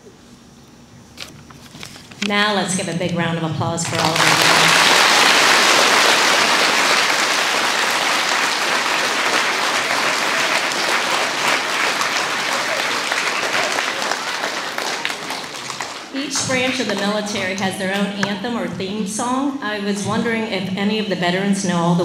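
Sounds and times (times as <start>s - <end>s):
audience applauding: 3.8s - 17.2s.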